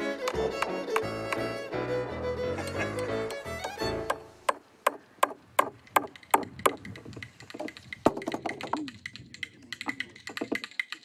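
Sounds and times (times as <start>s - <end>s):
hammer striking wooden frame: 3.6s - 6.8s.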